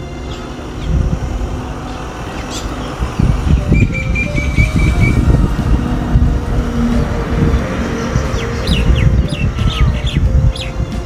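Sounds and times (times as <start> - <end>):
bird trill: 0.2 - 5.4, 7.8 - 10.9
low rumble: 0.8 - 11.0.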